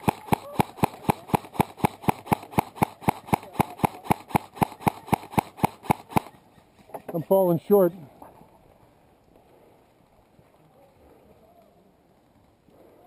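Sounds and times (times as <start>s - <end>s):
airsoft rifle shots: 0.0s - 6.4s.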